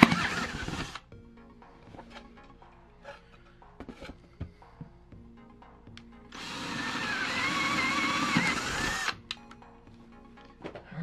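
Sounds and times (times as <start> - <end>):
power drill boring wood: 0.0 - 1.0, 6.4 - 9.2.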